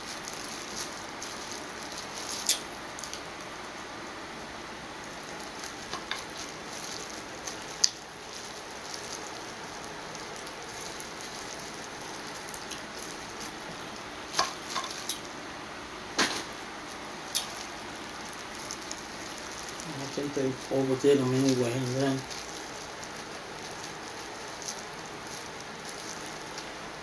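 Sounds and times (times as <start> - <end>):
steady hiss: 0.0 - 27.0
gloved hands pulling shellfish: 5.1 - 15.3, 16.9 - 27.0
chewing: 5.3 - 15.3, 17.3 - 20.2, 22.2 - 26.8.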